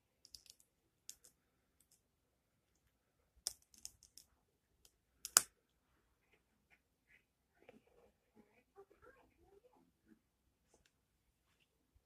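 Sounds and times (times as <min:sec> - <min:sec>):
plastic bricks clicking: 0:00.2 - 0:02.0, 0:03.4 - 0:04.3.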